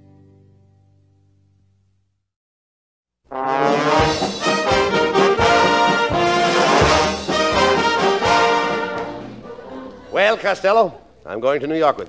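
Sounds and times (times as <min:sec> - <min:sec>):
brass band playing: 0:03.3 - 0:09.4.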